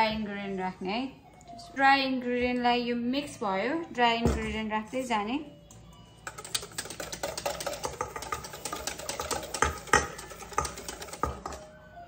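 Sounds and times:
whisk beating batter in metal bowl: 6.3 - 11.7
whisk knocking on bowl: 6.3 - 11.7.

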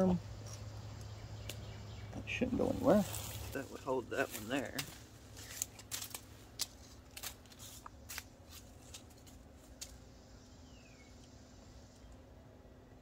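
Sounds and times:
cord rustling: 3.0 - 10.0.

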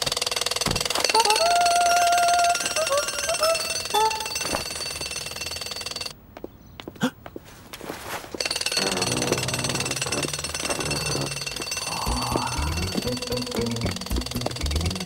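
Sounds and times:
cartoon pneumatic drill rattling: 0.0 - 6.1, 8.4 - 15.0
motor chugging: 8.8 - 15.0.

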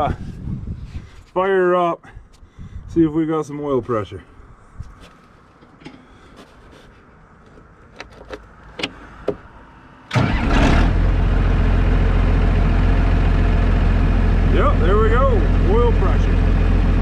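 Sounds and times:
diesel engine starting and idling: 8.8 - 17.0.

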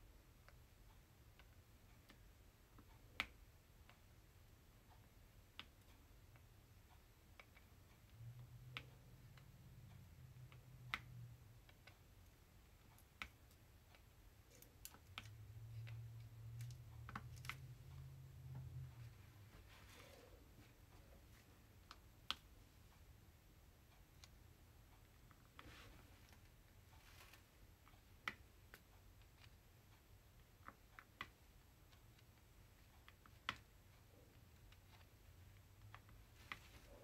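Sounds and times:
faint low hum: 0.0 - 37.0.

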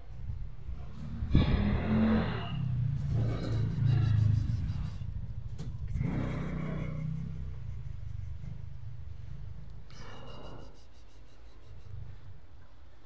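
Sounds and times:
vehicle engine revving: 0.7 - 9.9.

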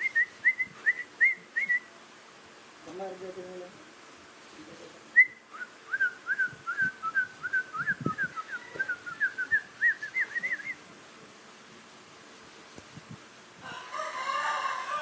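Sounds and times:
short whistled notes: 5.2 - 10.8.

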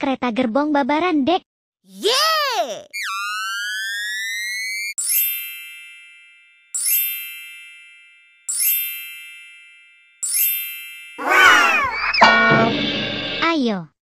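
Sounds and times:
bell-like chime: 5.0 - 13.4.

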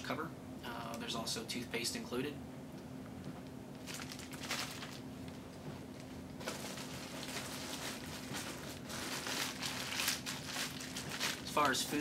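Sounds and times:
plastic bag crinkling: 3.8 - 12.0.

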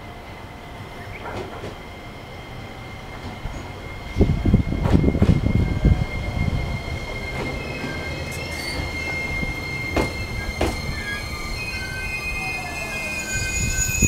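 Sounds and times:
train wheels rumbling on rail: 0.0 - 14.0
wheels clacking over rail joints: 1.2 - 1.9, 7.0 - 11.8
high-pitched wheel squealing: 3.2 - 14.0.

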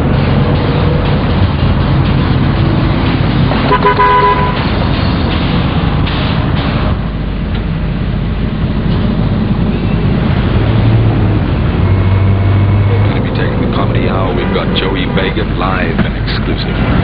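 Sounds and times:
car road and engine rumble: 0.0 - 17.0
short car horn toot: 3.7 - 4.6.

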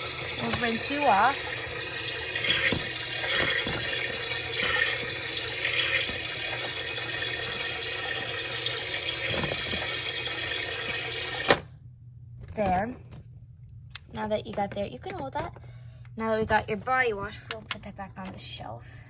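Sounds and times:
water splashes: 0.0 - 11.4
water running from thin spout: 0.0 - 11.5.

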